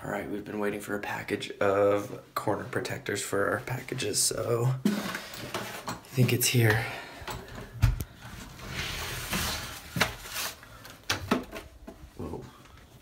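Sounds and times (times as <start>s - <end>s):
rustling: 8.1s - 11.0s.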